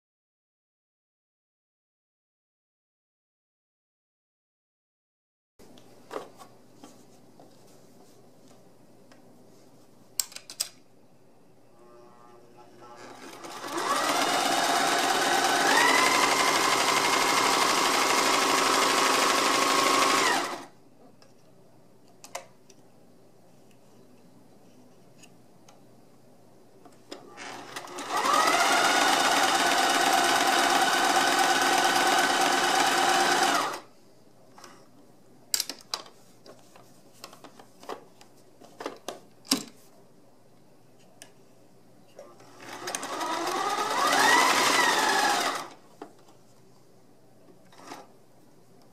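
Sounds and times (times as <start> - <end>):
sewing machine stitching: 13.0 - 20.7, 27.3 - 33.8, 42.4 - 45.8, 47.7 - 48.1.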